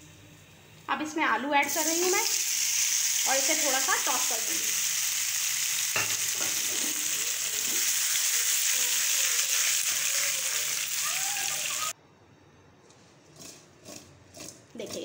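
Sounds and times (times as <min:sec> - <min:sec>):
potatoes sizzling in hot oil: 0:01.6 - 0:11.9.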